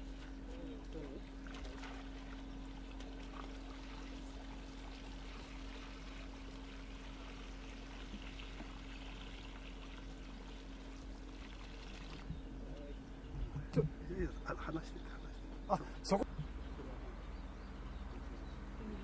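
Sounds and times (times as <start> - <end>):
water pouring into pond: 1.4 - 12.4.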